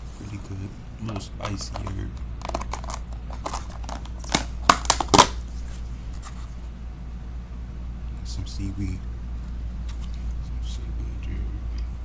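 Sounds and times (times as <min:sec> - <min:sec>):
plastic container crackling: 0:01.1 - 0:05.4
sharp plastic snaps: 0:01.6 - 0:05.4.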